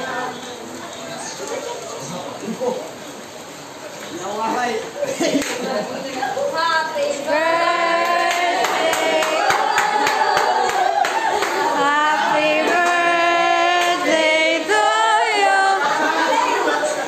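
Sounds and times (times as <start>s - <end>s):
group singing in chorus: 7.2s - 17.0s
hand claps: 8.0s - 11.7s, 13.7s - 14.0s.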